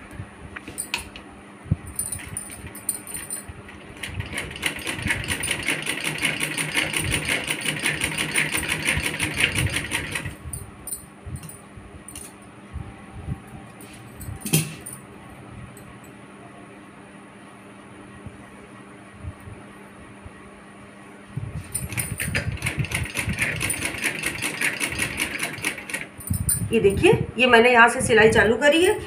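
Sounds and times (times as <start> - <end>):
sewing machine stitching: 4.0 - 10.3, 21.9 - 26.1.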